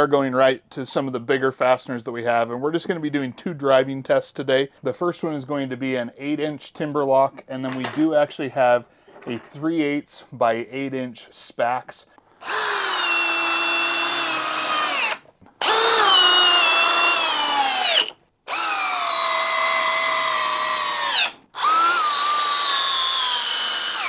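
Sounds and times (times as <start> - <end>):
hammer drill whining: 12.4 - 24.0.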